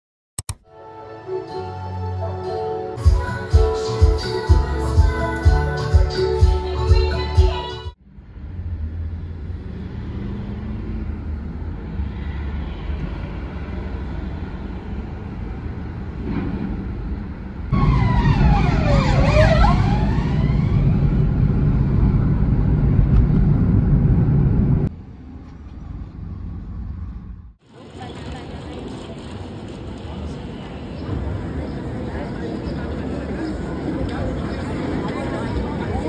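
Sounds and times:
car road and engine noise: 0:08.0 - 0:36.0.

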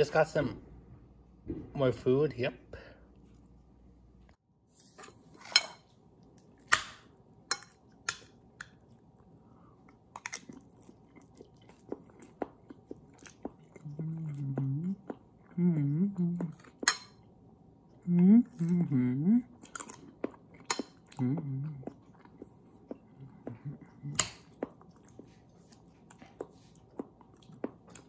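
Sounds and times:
person chewing food: 0:06.2 - 0:28.0
low hummed voice: 0:13.6 - 0:16.9, 0:17.9 - 0:19.7, 0:21.0 - 0:22.3, 0:22.9 - 0:24.5.

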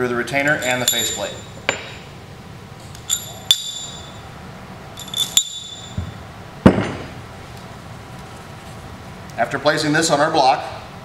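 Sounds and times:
metal bolts clinking and ringing: 0:00.4 - 0:02.1, 0:02.8 - 0:04.3, 0:04.9 - 0:06.2
parts thudding on wooden bench: 0:05.9 - 0:07.1.

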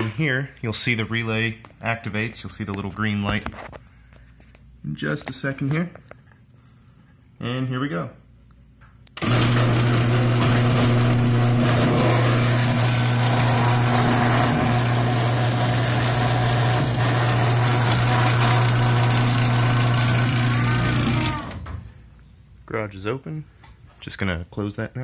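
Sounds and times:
garage door opener motor: 0:09.1 - 0:21.9.

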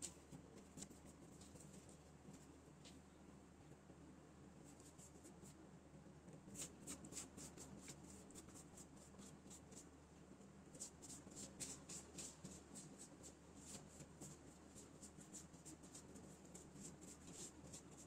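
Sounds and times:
brush dabbing on pastry sheets: 0:10.8 - 0:18.0.

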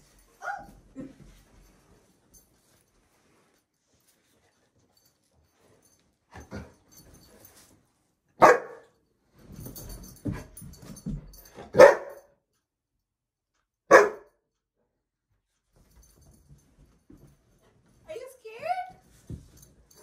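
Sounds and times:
dog barking: 0:08.4 - 0:08.9, 0:11.7 - 0:12.3, 0:13.9 - 0:14.4.

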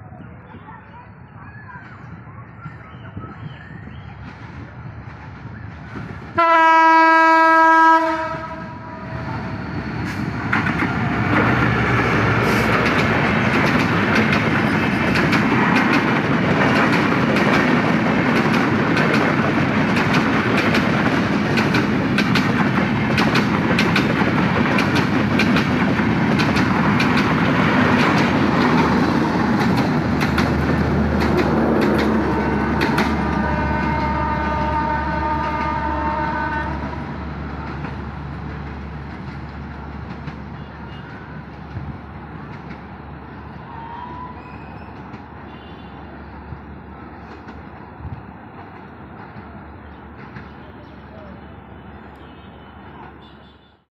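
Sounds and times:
train rumbling past: 0:00.0 - 0:53.6
locomotive horn blast: 0:06.4 - 0:09.5, 0:32.1 - 0:37.0
wheels clicking over rail joints: 0:10.0 - 0:34.6.

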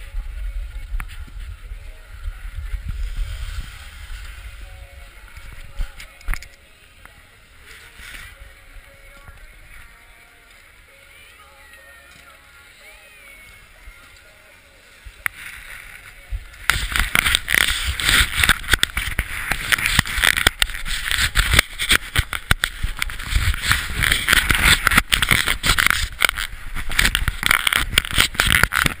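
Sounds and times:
skis scraping over snow: 0:02.5 - 0:05.8, 0:15.3 - 0:29.0.

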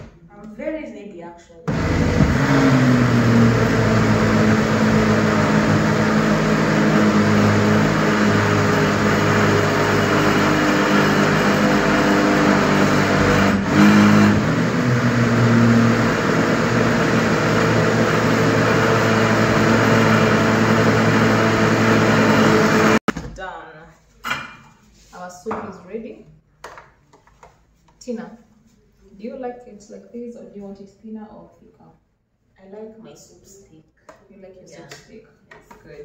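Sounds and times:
blender motor running: 0:01.7 - 0:23.0.

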